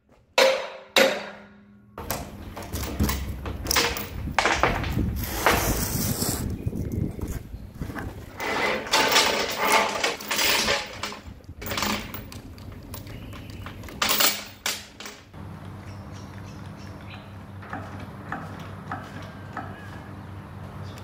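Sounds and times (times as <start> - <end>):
steel chain clinking and rattling: 2.6 - 5.0, 8.3 - 15.3.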